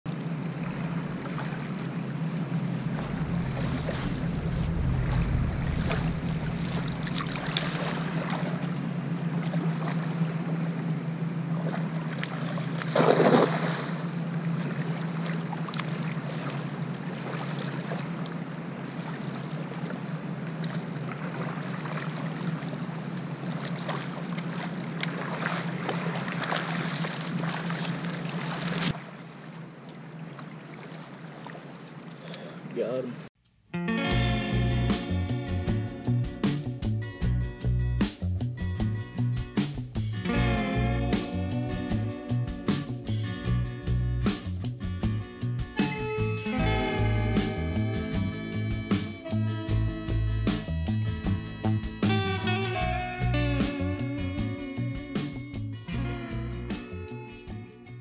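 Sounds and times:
small waves washing on shore: 0.1 - 33.3
wading slosh: 0.2 - 32.8
wind on microphone: 2.8 - 8.6
cast net splashing on water: 11.6 - 29.2.

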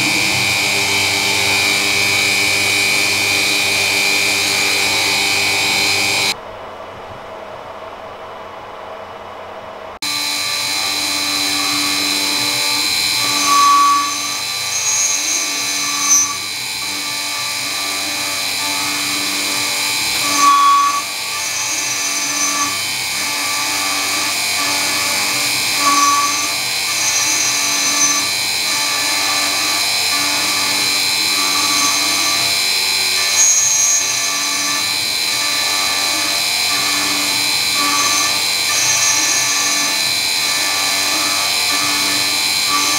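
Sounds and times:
milling machine whining: 0.0 - 6.4, 10.0 - 42.9.

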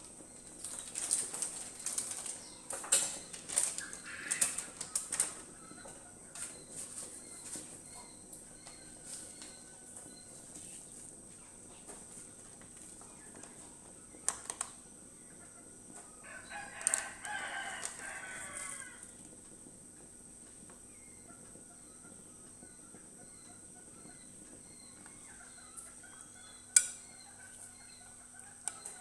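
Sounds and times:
rooster crowing: 16.2 - 19.2.

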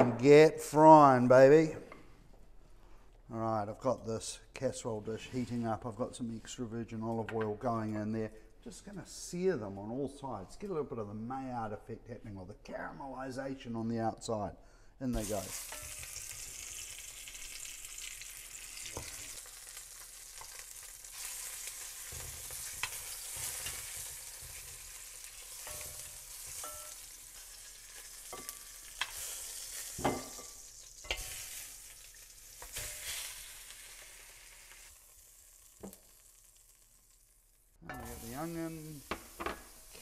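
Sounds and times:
meat sizzling in oil: 15.2 - 40.0.

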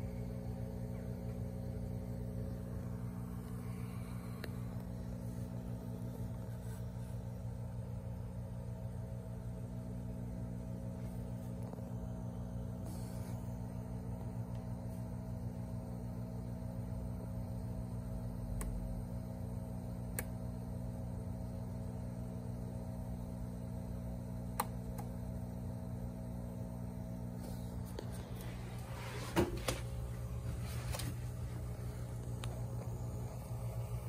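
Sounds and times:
aquarium equipment hum: 0.0 - 34.0
phone handling knocks and rustling: 29.2 - 29.9.

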